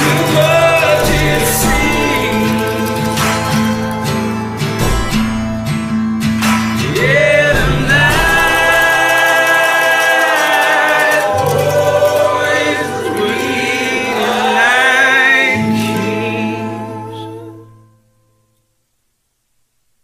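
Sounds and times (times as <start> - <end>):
man singing: 0.0 - 5.3, 6.8 - 17.8
backing vocals: 0.0 - 5.7, 6.8 - 17.9
steady low notes: 0.0 - 9.8.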